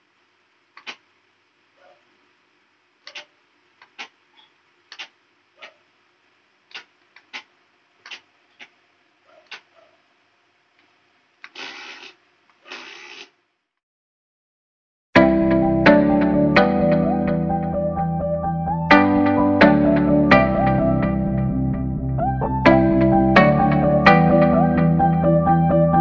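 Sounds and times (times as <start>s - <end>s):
control levers clicking: 3.1s - 5.1s.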